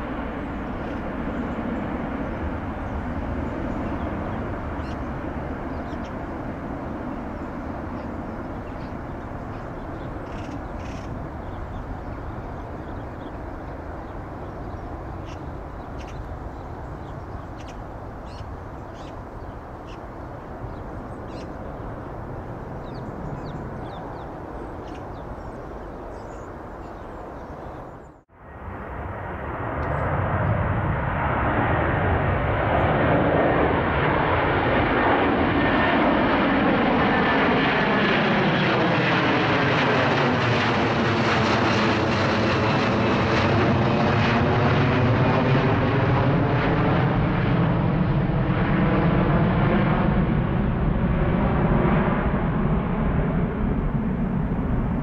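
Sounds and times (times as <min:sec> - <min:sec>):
jet engines roaring on take-off: 0:00.0 - 0:55.0
jet engines rumbling: 0:00.0 - 0:55.0
bird chirps: 0:04.8 - 0:05.1, 0:08.0 - 0:13.4, 0:14.0 - 0:20.0, 0:20.7 - 0:21.9, 0:22.8 - 0:28.2.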